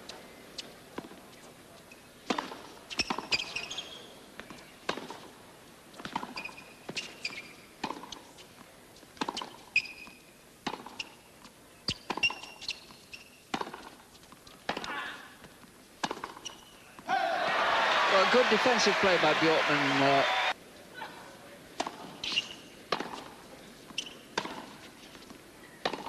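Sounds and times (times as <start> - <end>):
shoes squeaking on court: 0.6 - 5.3, 6.0 - 17.1, 21.8 - 26.0
tennis ball bouncing: 2.2 - 5.4, 6.0 - 17.1, 21.8 - 26.0
tennis racket striking ball: 7.8 - 8.2, 10.6 - 11.1, 11.9 - 12.6, 13.5 - 14.0, 14.6 - 15.0, 16.0 - 16.7, 21.8 - 26.0.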